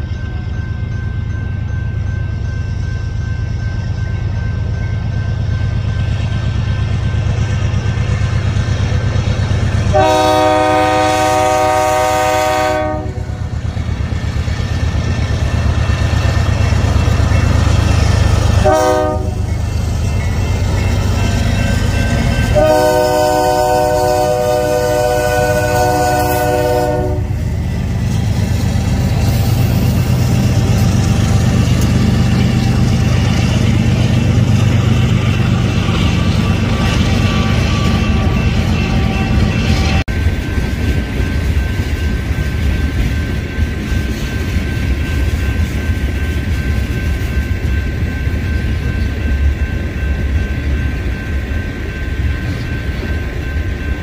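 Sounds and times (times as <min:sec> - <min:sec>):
locomotive horn blasts: 0:09.9 - 0:13.4, 0:18.6 - 0:19.4, 0:22.5 - 0:27.4.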